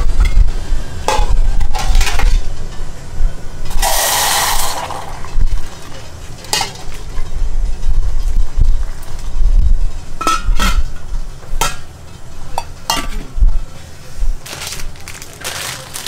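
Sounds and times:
low steady rumble: 0:00.0 - 0:16.0
metal pots knocking and clinking: 0:04.5 - 0:07.3, 0:10.2 - 0:11.0, 0:11.6 - 0:11.9, 0:12.6 - 0:13.4.

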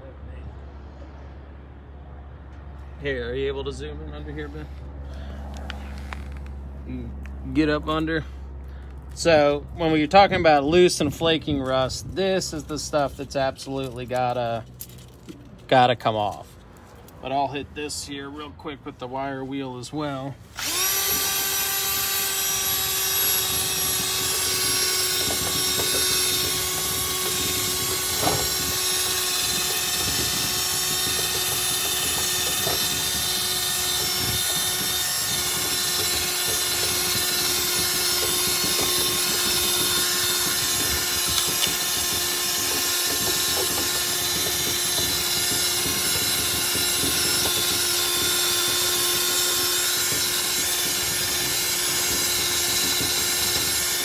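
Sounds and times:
cordless drill motor whine: 0:20.5 - 0:54.0.

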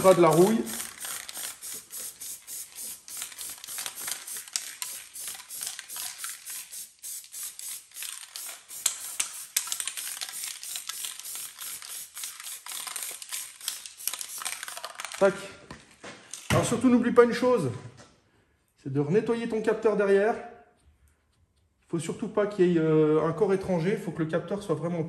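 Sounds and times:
hiss: 0:00.0 - 0:14.5.

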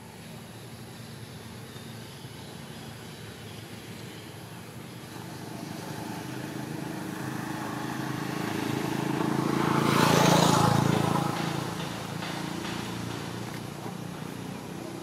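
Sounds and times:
vehicle passing by: 0:04.9 - 0:15.0.

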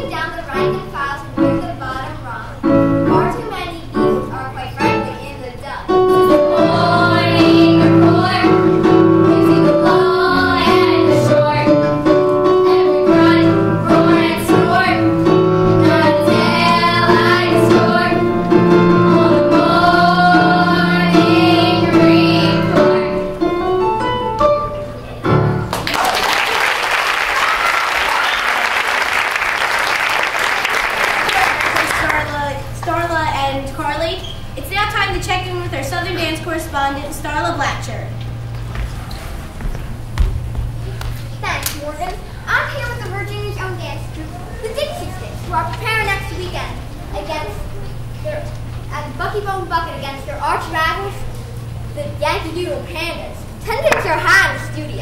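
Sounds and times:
girls singing with accompaniment: 0:05.9 - 0:23.5
audience applause: 0:25.7 - 0:32.6.

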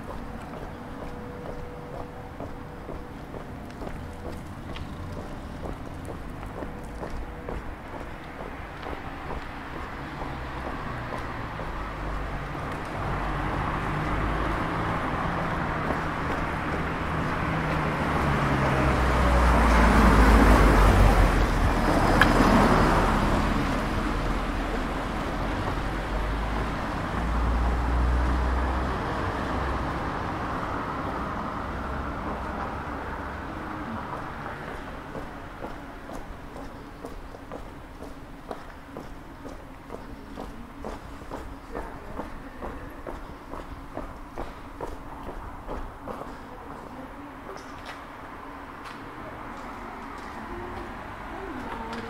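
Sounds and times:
cars passing by: 0:00.0 - 0:52.0.

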